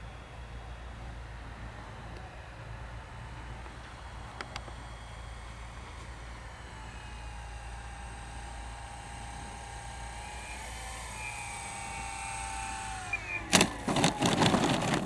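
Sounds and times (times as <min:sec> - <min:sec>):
electric motor and propeller whining: 0:00.0 - 0:15.0
plane rattling over grass: 0:11.6 - 0:15.0.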